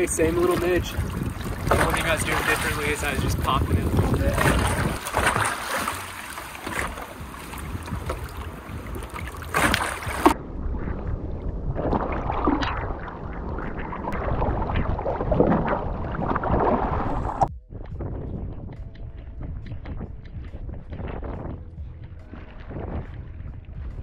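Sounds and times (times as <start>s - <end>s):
water lapping: 0.0s - 17.5s
wind buffeting microphone: 0.0s - 24.0s.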